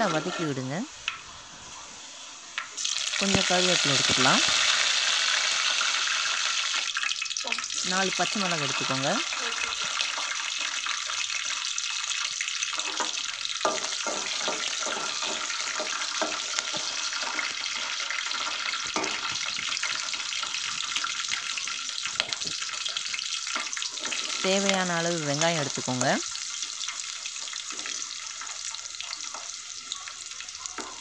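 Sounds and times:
chillies sizzling in hot oil: 0.0s - 31.0s.

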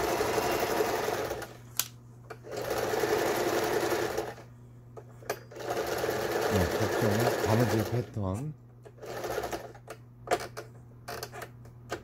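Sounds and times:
sewing machine stitching: 0.0s - 1.6s, 2.4s - 4.4s, 5.5s - 8.2s, 9.0s - 9.8s.

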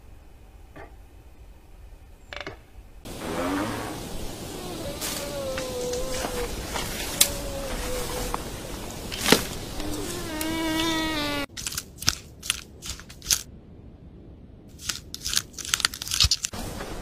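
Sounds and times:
elephant call: 3.1s - 8.7s
guinea pig crunching wood shavings: 14.8s - 16.6s.

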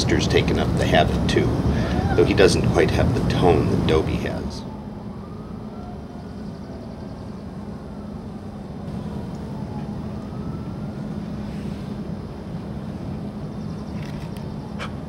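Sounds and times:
distant siren wailing: 0.0s - 15.0s
steady low hum: 0.0s - 15.0s
dog howling: 1.8s - 2.4s.

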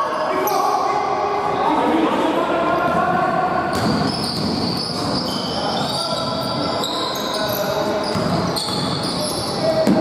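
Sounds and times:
sneakers squeaking on gym floor: 3.7s - 10.0s.

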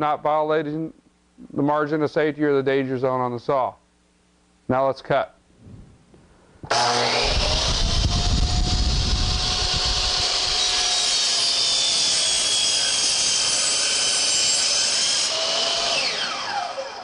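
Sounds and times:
miter saw whining: 6.7s - 17.0s
motor winding down: 6.7s - 17.0s
saw blade cutting wood: 6.7s - 17.0s.

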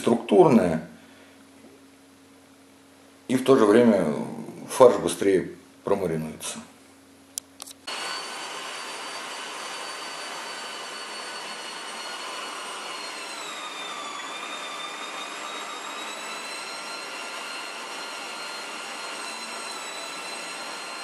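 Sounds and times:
electric meat grinder motor whine: 7.9s - 21.0s.

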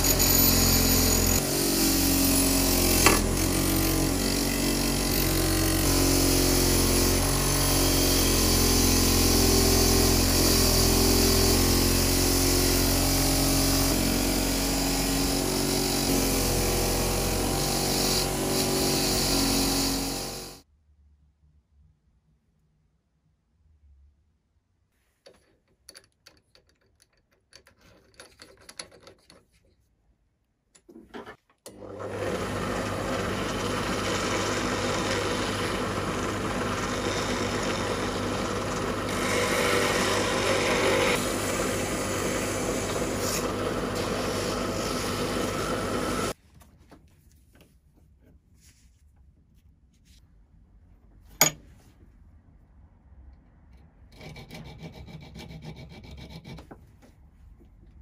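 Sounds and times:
file scraping screw threads: 0.0s - 1.4s, 25.2s - 29.6s, 33.3s - 46.4s, 53.8s - 56.8s
drill press humming: 10.0s - 20.6s, 31.7s - 46.4s.

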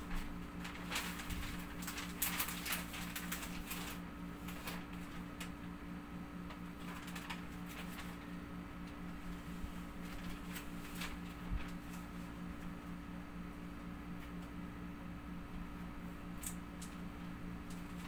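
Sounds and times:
plastic film rustling and crinkling: 0.0s - 5.6s, 6.5s - 8.4s, 9.2s - 12.4s
steady low hum: 0.0s - 18.0s.

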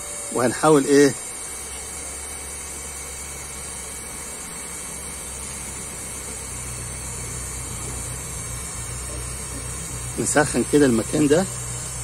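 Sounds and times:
heat gun blowing air: 0.0s - 12.0s.

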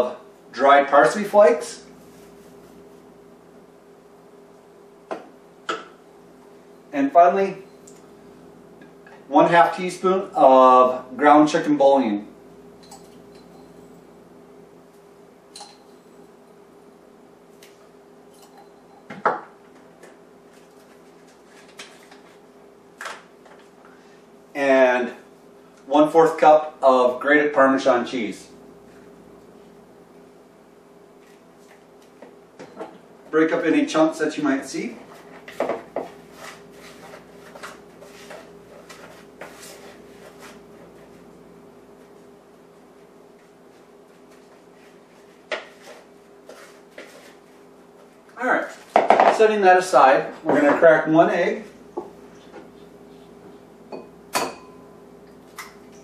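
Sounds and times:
steady low hum: 0.0s - 56.0s
utensil scraping in a bowl: 35.0s - 41.3s.

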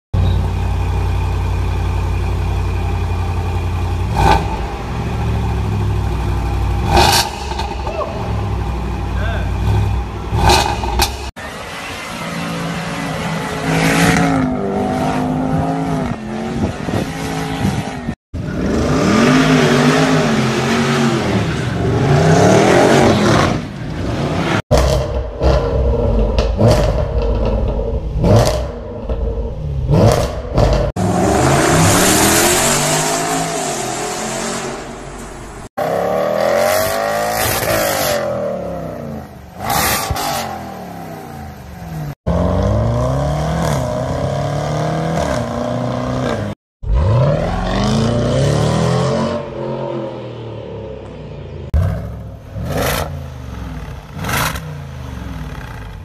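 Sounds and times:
car engine revving: 3.6s - 56.0s.

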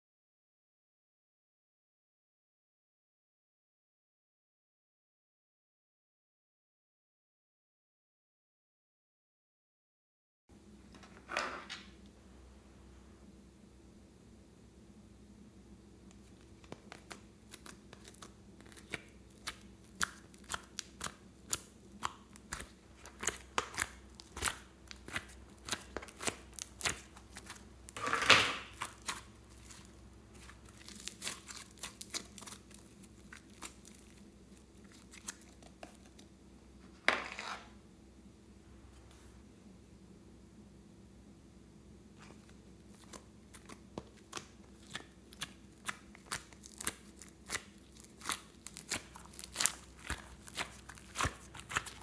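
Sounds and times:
slime squelch: 16.1s - 36.4s, 42.1s - 52.0s.

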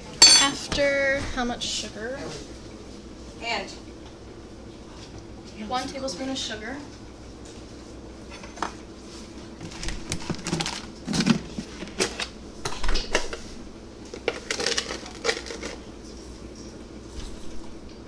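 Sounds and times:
utensils and plastic containers clattering: 9.6s - 13.4s, 14.1s - 15.8s.

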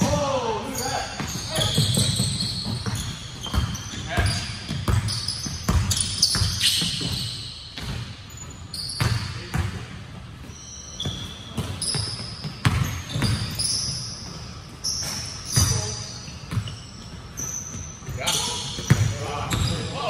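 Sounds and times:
sneaker squeaks: 0.0s - 20.0s
basketball bouncing on hardwood floor: 1.2s - 7.2s, 11.0s - 13.5s.

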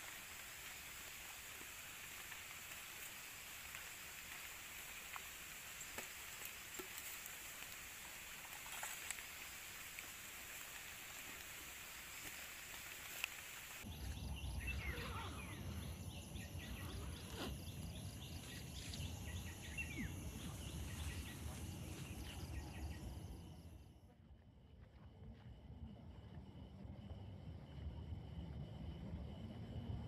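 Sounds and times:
broth bubbling and hissing: 0.0s - 18.4s.

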